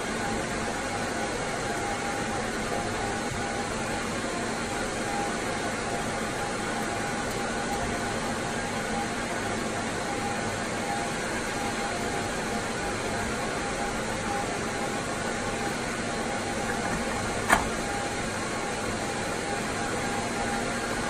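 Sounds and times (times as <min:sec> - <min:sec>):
fan whirring: 0:11.4 - 0:21.0.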